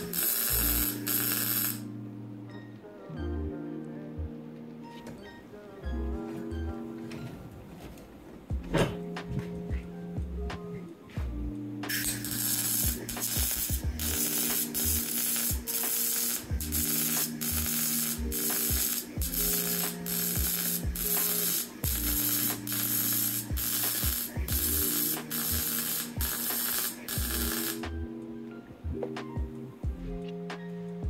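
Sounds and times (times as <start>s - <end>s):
welder arc crackling: 0.0s - 1.9s, 11.9s - 28.1s.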